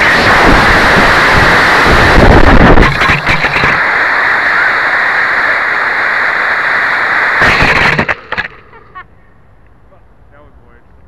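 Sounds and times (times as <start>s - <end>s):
rocket motor roaring: 0.0s - 8.8s
steady hiss: 0.0s - 11.0s.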